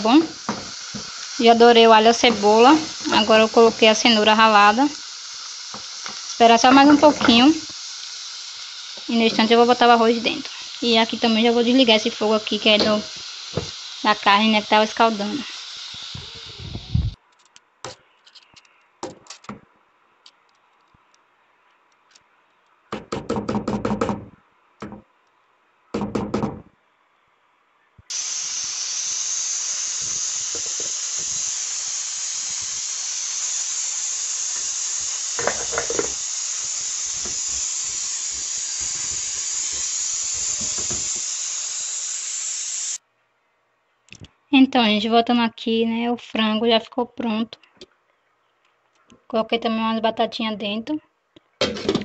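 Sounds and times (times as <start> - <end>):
pressure cooker steam hiss: 0.0 - 17.2, 28.1 - 43.0
pots and lids rattling: 35.4 - 36.2.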